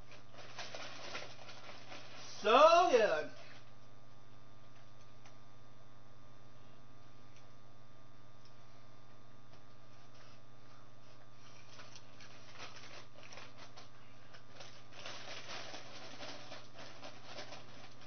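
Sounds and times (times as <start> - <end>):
chip bag crinkling: 0.0 - 3.7, 11.1 - 18.0
steady low hum: 0.0 - 18.0.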